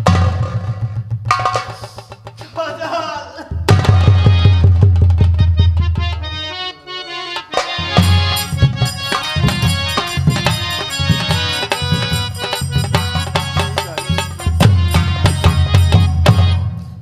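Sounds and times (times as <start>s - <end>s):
hand drums beating: 0.0s - 6.4s, 7.3s - 17.0s
sustained folk melody: 3.7s - 17.0s.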